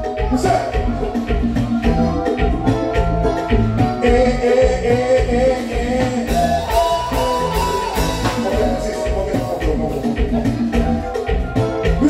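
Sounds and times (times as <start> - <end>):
bass and electric guitar: 0.0 - 12.0
drum kit steady beat: 0.0 - 12.0.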